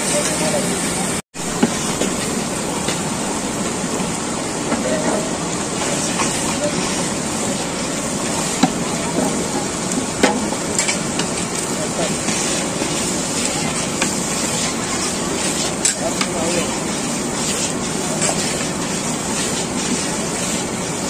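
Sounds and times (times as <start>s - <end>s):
curry sizzling in a pan: 4.9s - 21.0s.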